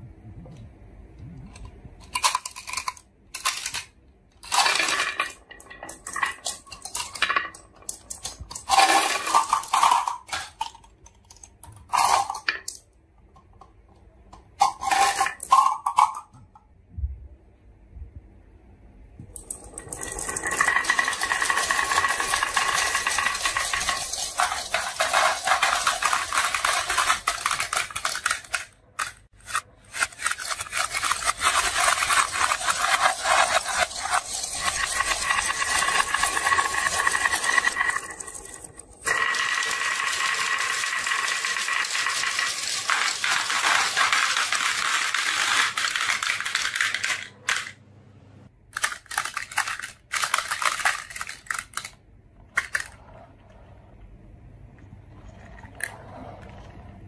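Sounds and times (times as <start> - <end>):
marbles rolling on wooden track: 2.0 - 12.8, 14.6 - 16.4, 19.4 - 47.8, 48.8 - 53.3
marbles clinking: 2.1 - 11.0, 19.4 - 47.7.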